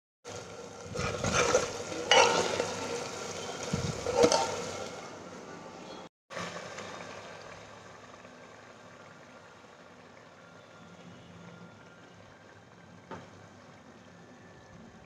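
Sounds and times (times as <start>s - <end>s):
curry sizzling and bubbling: 0.2s - 15.0s
wooden spatula scraping pot: 0.9s - 4.9s.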